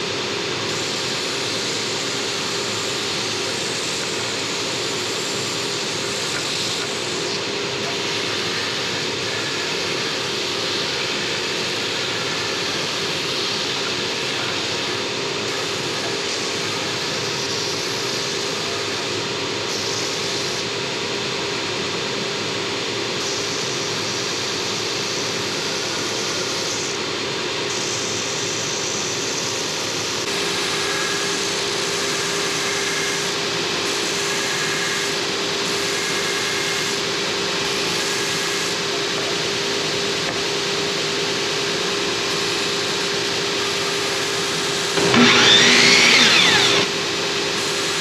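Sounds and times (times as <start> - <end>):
belt sander grinding wood: 44.8 - 48.0.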